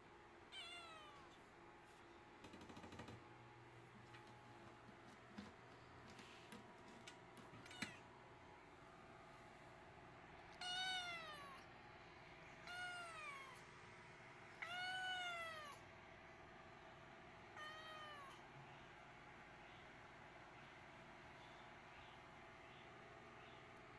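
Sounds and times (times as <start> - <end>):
cat meowing: 0.5 - 1.4, 7.6 - 8.0, 10.5 - 11.7, 12.6 - 13.6, 14.6 - 15.8, 17.6 - 18.4.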